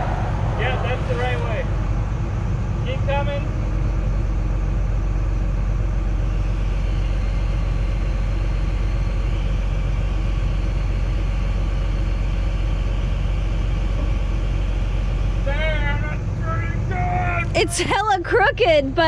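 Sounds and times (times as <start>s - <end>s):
faint high whine: 0.0s - 11.1s
diesel engine running: 0.0s - 19.0s.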